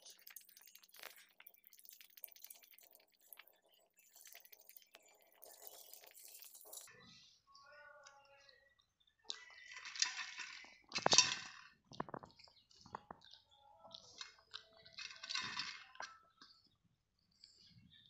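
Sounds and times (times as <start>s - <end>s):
metal bowl clinking on concrete: 0.0s - 3.4s, 9.5s - 11.7s, 14.9s - 16.1s
puppy lapping milk: 0.0s - 6.8s.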